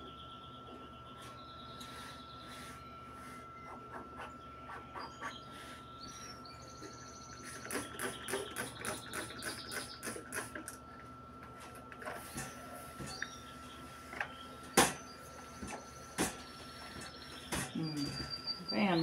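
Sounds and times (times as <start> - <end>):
bird chirping: 3.6 - 10.2, 13.0 - 19.0.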